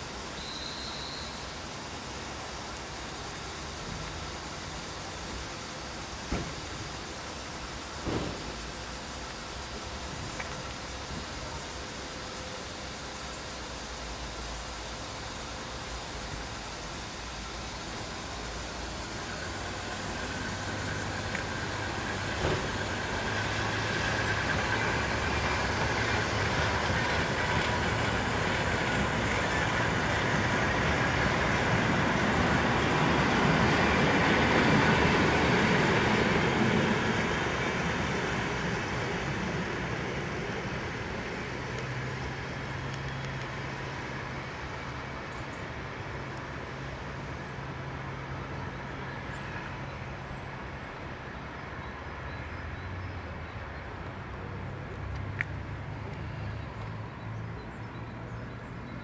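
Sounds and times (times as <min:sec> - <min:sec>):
diesel locomotive engine: 0:00.0 - 0:59.0
train carriages rolling: 0:04.9 - 0:12.4, 0:15.5 - 0:44.2.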